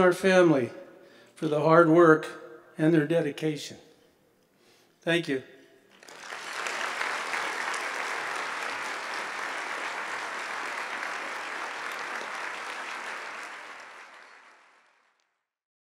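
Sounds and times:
audience clapping: 0:05.9 - 0:15.3.

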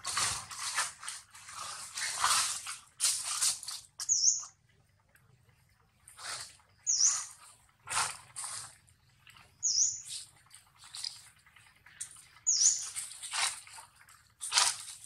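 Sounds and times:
high chirps: 0:04.0 - 0:04.6, 0:06.8 - 0:07.3, 0:09.6 - 0:10.2, 0:12.4 - 0:13.0.

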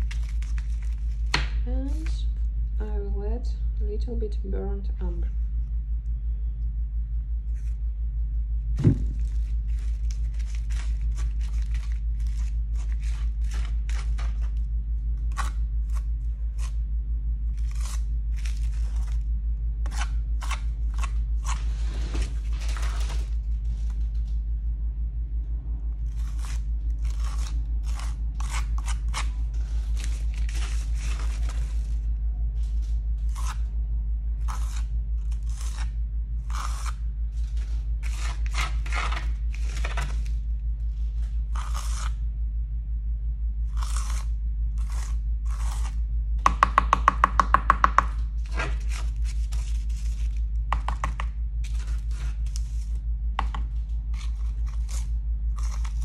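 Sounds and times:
gritty paste crunching scrapes: 0:17.5 - 0:23.9, 0:26.0 - 0:33.7, 0:34.4 - 0:42.2, 0:53.6 - 0:56.0.

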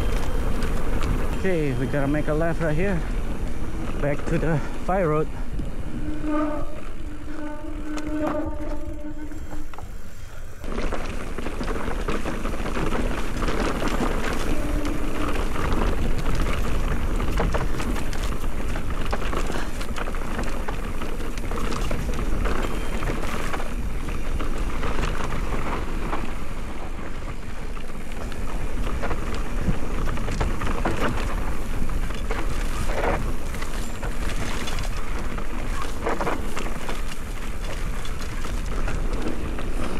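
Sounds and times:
bike tyres crunching on gravel: 0:00.0 - 0:39.9
wind on microphone: 0:03.0 - 0:09.8
small clicks and rattles: 0:10.6 - 0:39.9.

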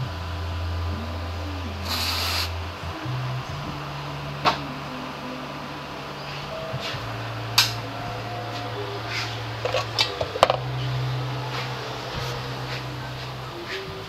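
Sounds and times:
background music: 0:00.0 - 0:14.0
aerosol spray can hiss: 0:01.8 - 0:02.6.

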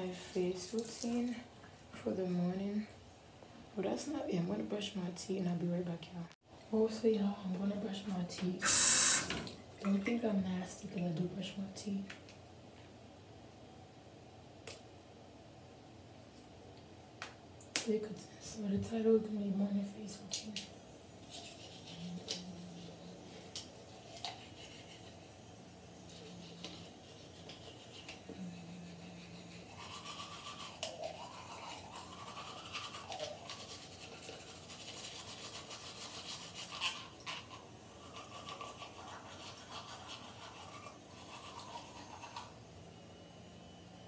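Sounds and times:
toothbrush scrubbing teeth: 0:21.1 - 0:42.6.

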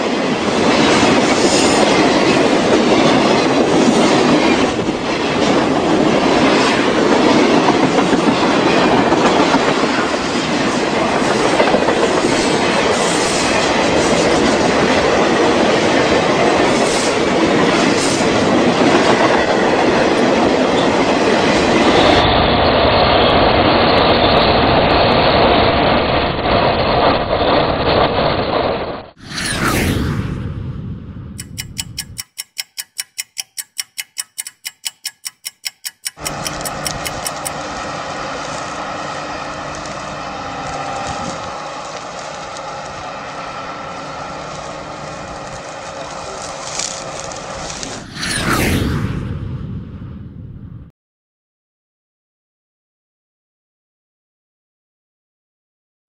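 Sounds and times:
freight train rumbling past: 0:00.0 - 0:30.6, 0:36.2 - 0:50.8
train wheel squeal: 0:00.7 - 0:14.9, 0:29.2 - 0:29.8, 0:36.1 - 0:48.6.

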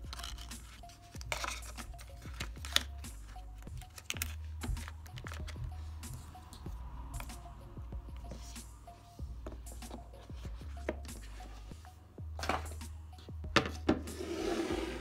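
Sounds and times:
soft background music: 0:00.0 - 0:15.0
paper insert handled: 0:00.1 - 0:02.9.

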